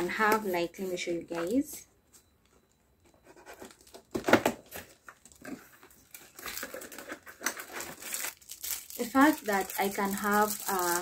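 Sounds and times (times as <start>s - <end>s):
cardboard packaging rustling: 3.2s - 11.0s
packaging crinkling: 3.6s - 11.0s.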